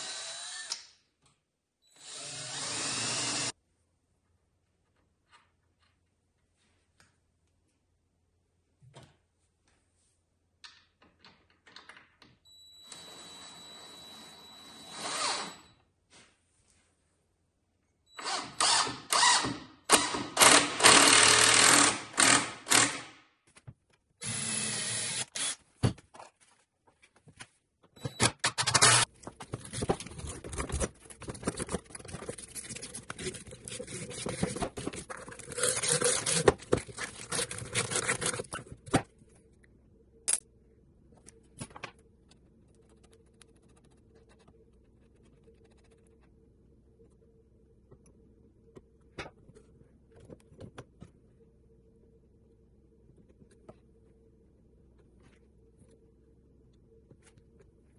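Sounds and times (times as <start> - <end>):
cordless drill running: 0.0 - 0.7, 2.0 - 3.5, 18.2 - 23.0, 24.2 - 25.6.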